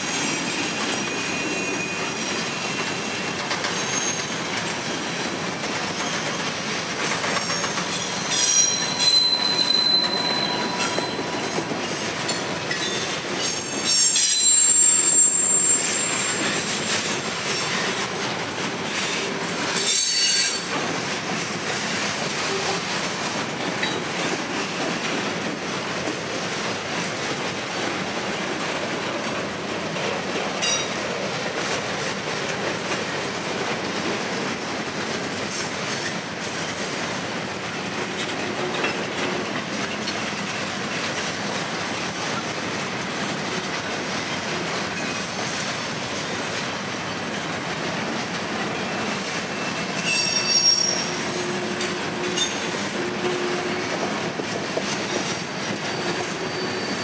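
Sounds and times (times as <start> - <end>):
freight train wheels rumbling: 0.0 - 57.0
high wheel squeal: 0.2 - 4.4, 7.4 - 12.0, 12.7 - 17.0, 19.8 - 20.7, 49.5 - 51.6, 55.3 - 57.0.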